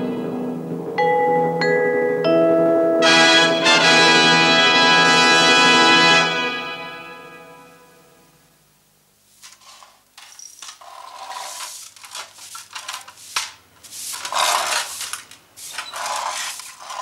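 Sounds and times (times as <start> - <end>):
broom sweeping tiled floor: 9.2 - 17.0.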